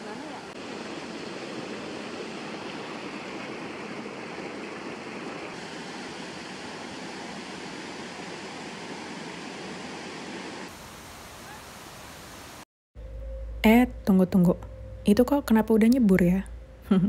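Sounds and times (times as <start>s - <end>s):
small waterfall rushing: 0.0s - 12.6s.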